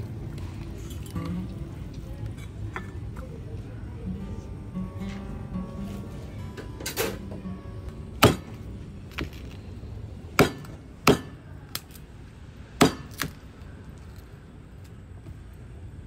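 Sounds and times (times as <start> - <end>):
cleaver chopping on wooden board: 8.2 - 8.5, 10.4 - 11.4, 12.8 - 13.4.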